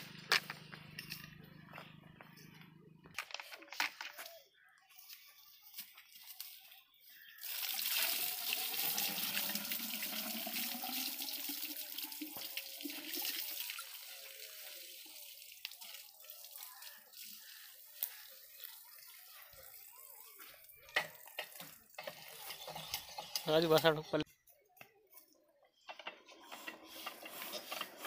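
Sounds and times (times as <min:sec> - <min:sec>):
water pouring from bucket: 0:07.4 - 0:23.8.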